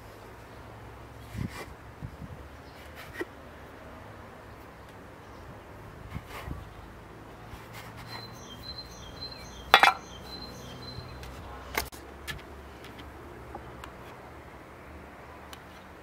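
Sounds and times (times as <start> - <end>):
bird chirping: 8.0 - 11.5.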